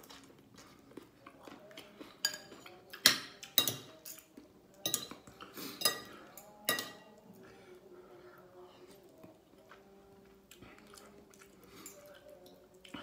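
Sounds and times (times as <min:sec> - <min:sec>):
cutlery clinking against dishes: 0:02.0 - 0:07.2, 0:11.6 - 0:13.0.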